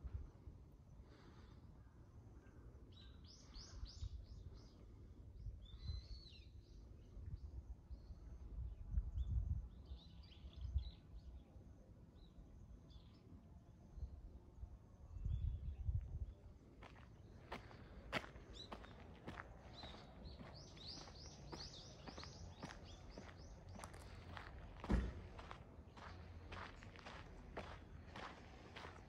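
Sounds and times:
small birds chirping: 15.2s - 29.0s.

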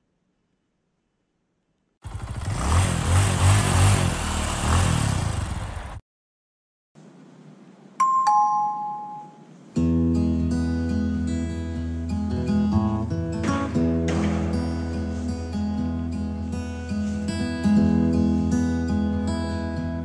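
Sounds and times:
two-note falling chime: 8.0s - 9.4s
acoustic guitar music: 9.8s - 20.0s.

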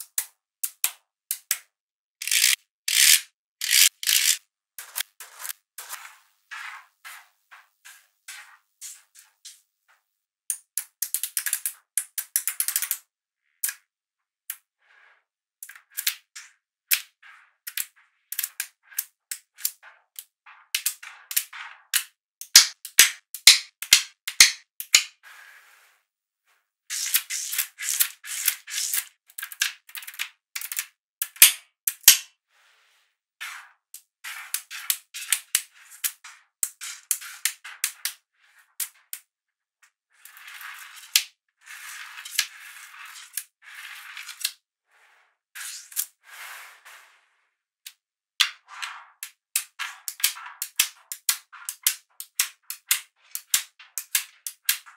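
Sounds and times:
magnetic balls clicking together: 0.0s - 5.6s, 10.5s - 13.0s, 15.6s - 25.2s, 26.9s - 32.3s, 49.2s - 54.9s.

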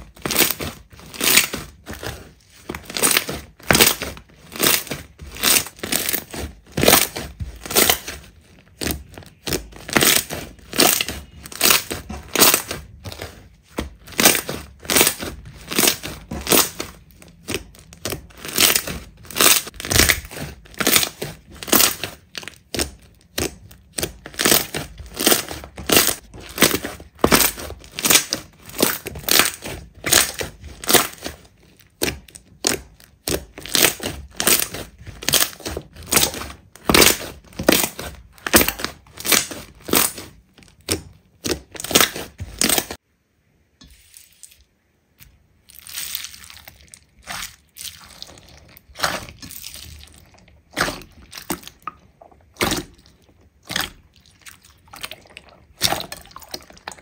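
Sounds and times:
slime squeezed by hand: 45.6s - 57.0s.

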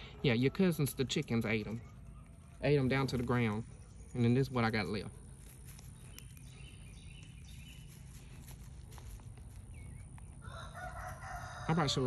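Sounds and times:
rabbits nibbling leaves: 0.0s - 12.0s
rooster crowing: 10.4s - 12.0s.

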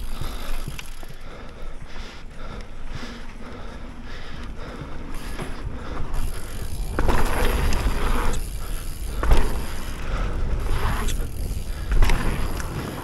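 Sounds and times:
bike tyres rolling on dirt: 0.0s - 13.0s
wind rumbling over microphone: 5.6s - 13.0s.

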